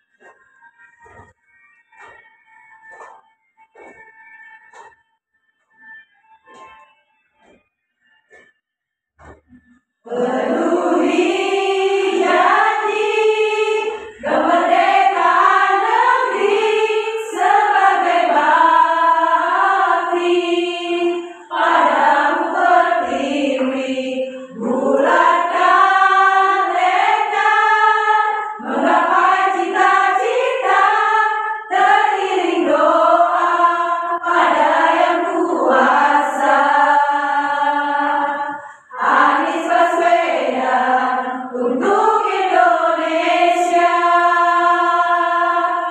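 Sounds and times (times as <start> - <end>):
women's choir singing: 10.0 - 45.9.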